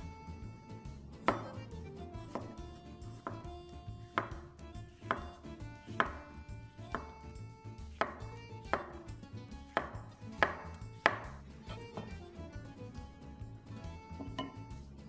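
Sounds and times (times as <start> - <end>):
knife slicing mushrooms: 1.2 - 12.4
knife knocking on wooden board: 1.3 - 1.6, 2.3 - 2.6, 3.2 - 3.6, 4.2 - 5.4, 6.0 - 7.3, 7.9 - 9.1, 9.7 - 12.4, 14.1 - 14.8.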